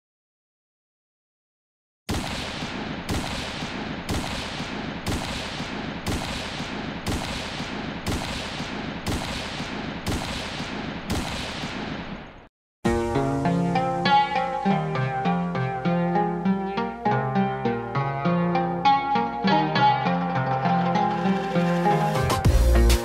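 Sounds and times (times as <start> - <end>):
sharp bangs with rumbling tail: 2.1 - 12.2
plucked-string music: 12.9 - 23.0.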